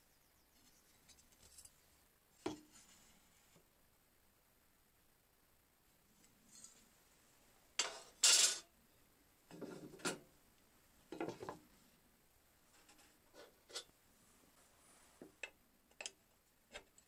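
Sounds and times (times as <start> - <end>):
metal tools clattering on wood: 7.8 - 8.7.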